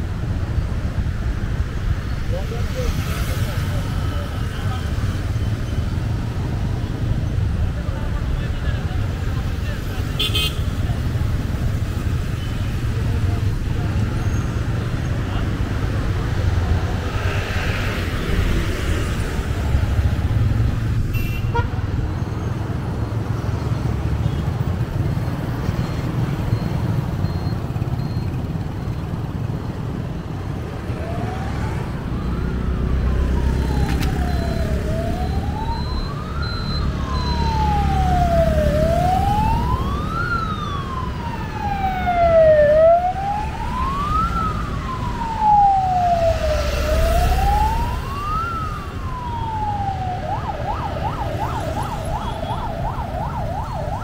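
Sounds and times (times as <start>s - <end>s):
street traffic rumble: 0.0s - 54.0s
emergency siren wailing: 29.4s - 54.0s.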